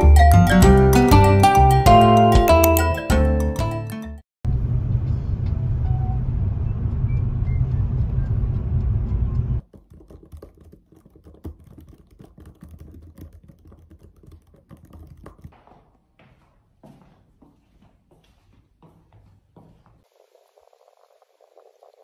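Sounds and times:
typing on a keyboard: 9.6 - 15.6.

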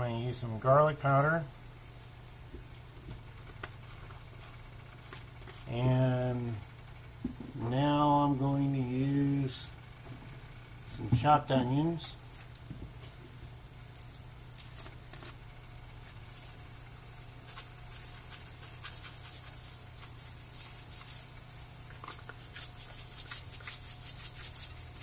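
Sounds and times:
low steady hum: 0.0 - 25.0
spice shaker rattling: 17.4 - 25.0.

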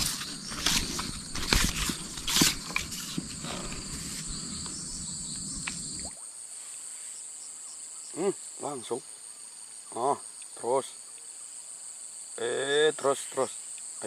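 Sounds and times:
handling knocks and rustles: 0.0 - 5.8
low rustling noise: 0.0 - 6.1
insects trilling: 0.0 - 14.0.

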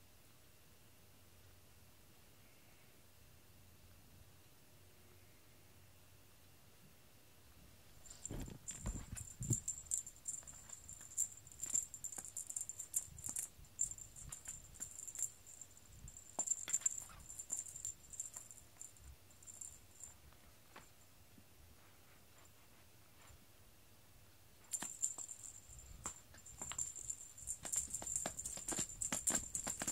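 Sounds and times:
small bell jingling: 8.0 - 20.3, 24.6 - 29.9.

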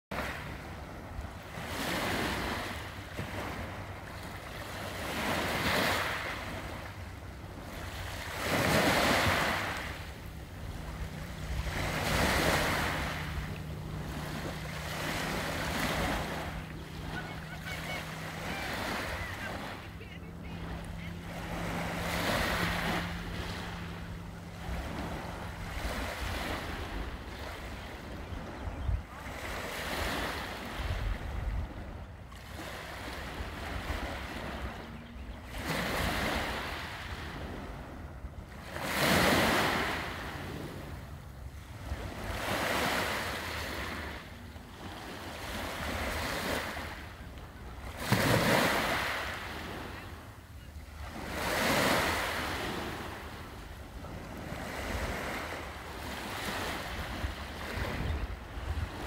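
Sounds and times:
small waves washing up beach: 0.1 - 59.0
wind rumble on microphone: 21.4 - 32.3, 52.8 - 59.0.

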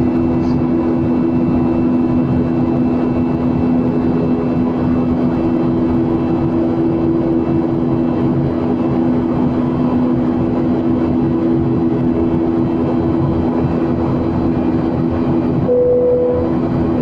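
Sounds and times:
jet engines droning: 0.0 - 17.0
brief higher tone: 15.6 - 16.6.

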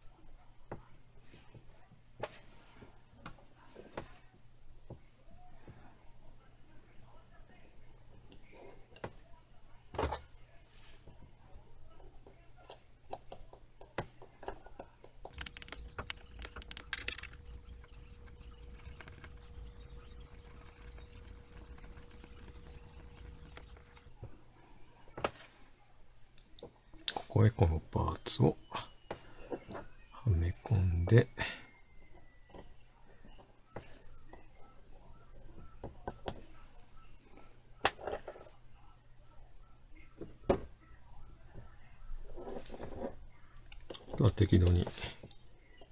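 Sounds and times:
faint steady hum: 15.2 - 25.2.

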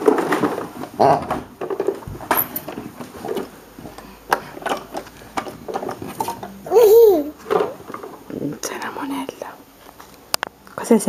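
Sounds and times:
handling knocks clicks and rustles: 0.0 - 6.6
soft child vocal sound: 6.6 - 7.4.

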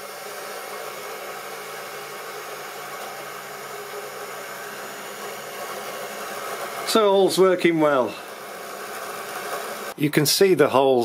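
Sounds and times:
model train motor humming: 0.0 - 10.0.

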